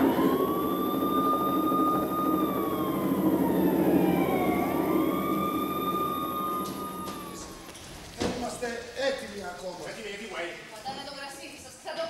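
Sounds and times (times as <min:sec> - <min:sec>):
low rumble: 0:00.0 - 0:07.8
police sirens wailing: 0:00.0 - 0:07.8.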